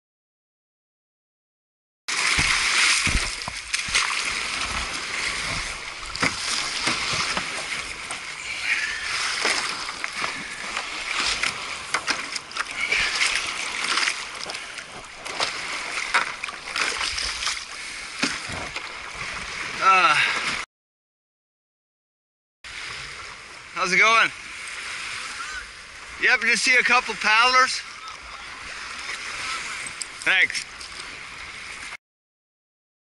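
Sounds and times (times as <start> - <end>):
water splashing against paddleboard: 2.1 - 20.6, 24.4 - 32.0.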